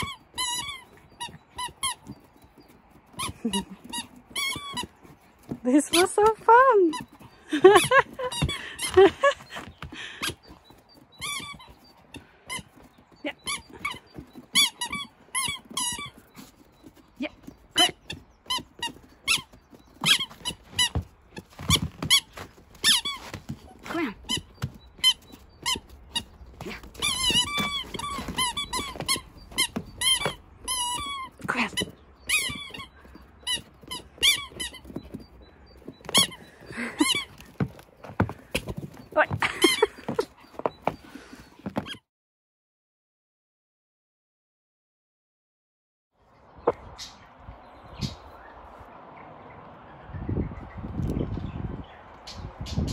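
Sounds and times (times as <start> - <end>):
squeaky toy squeaking: 0.0 - 2.2, 3.2 - 4.9, 11.2 - 11.8, 13.3 - 16.5, 17.8 - 37.7.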